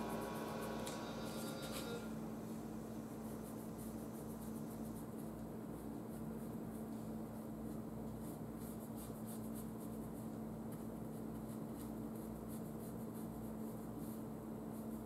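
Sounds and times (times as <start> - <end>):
low hum: 0.0 - 5.8
paintbrush scratching on canvas: 3.2 - 15.0.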